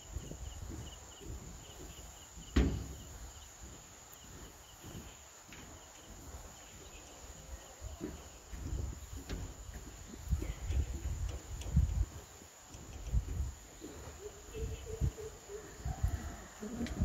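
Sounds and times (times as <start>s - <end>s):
footsteps on steel deck: 0.0s - 15.9s
insects chirping: 0.0s - 17.0s
loud knock: 2.5s - 3.0s.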